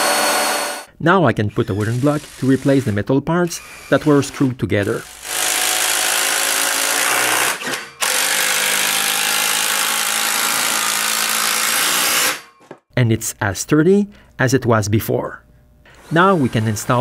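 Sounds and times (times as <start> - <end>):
cordless drill driving screws into wood: 5.1 - 12.4.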